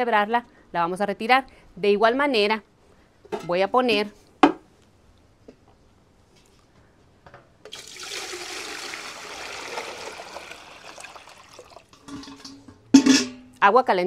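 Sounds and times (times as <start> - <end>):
water pouring into metal pot: 7.7 - 12.5.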